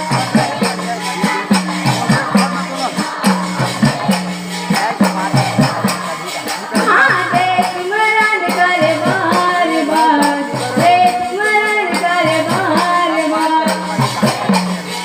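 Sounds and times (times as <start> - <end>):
drum beat: 0.0 - 15.0
jingling percussion: 0.0 - 15.0.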